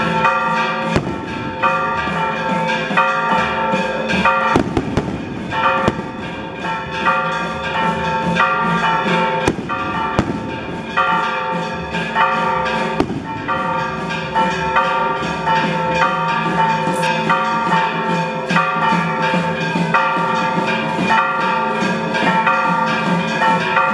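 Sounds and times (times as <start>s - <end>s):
church bells ringing: 0.0s - 23.9s
firecracker bangs: 0.9s - 2.4s, 4.1s - 7.0s, 9.4s - 11.3s, 12.9s - 14.0s.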